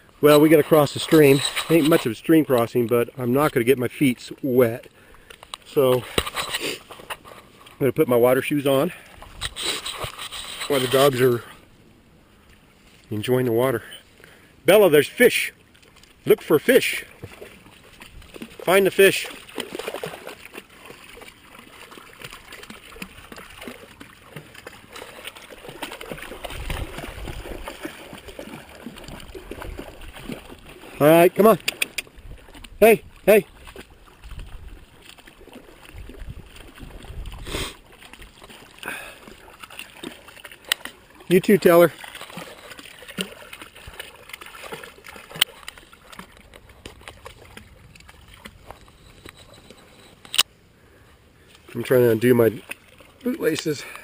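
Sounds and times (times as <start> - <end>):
mountain stream running: 0.0 - 54.0
dogs splashing in water: 0.2 - 3.9, 15.3 - 49.6, 51.8 - 54.0.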